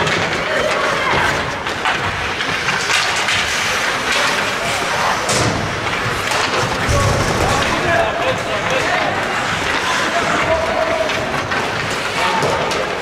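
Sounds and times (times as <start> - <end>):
skates scraping ice: 0.0 - 13.0
sticks and puck hitting boards: 0.0 - 13.0.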